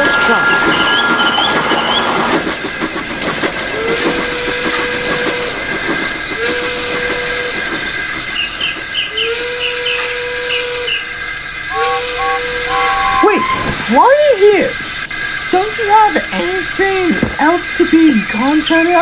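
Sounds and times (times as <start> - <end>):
train wheels clicking: 0.0 - 14.2
steam whistle blowing: 3.9 - 5.6, 6.4 - 7.6, 9.2 - 11.1, 11.7 - 13.9.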